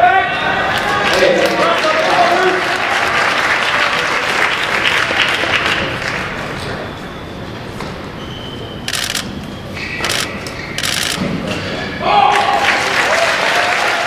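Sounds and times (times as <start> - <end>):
spectators applauding: 0.7 - 6.6, 12.2 - 14.0.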